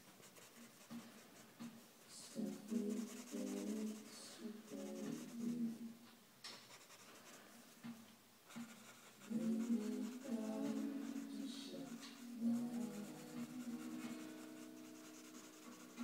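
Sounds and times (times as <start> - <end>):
pencil scratching on paper: 0.0 - 1.6, 2.4 - 5.6, 6.6 - 7.5, 8.5 - 16.0
muffled background voices: 2.1 - 6.0, 9.2 - 14.6.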